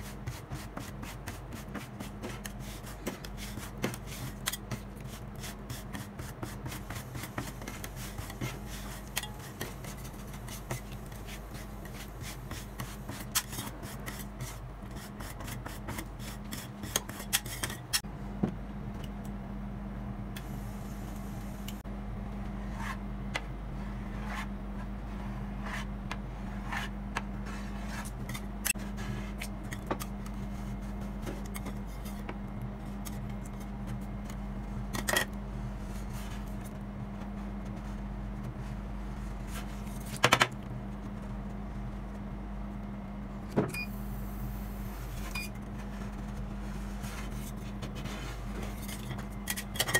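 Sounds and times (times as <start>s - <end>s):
steady low hum: 0.0s - 49.9s
spatulas scraping and tapping metal: 0.5s - 18.0s, 48.6s - 49.9s.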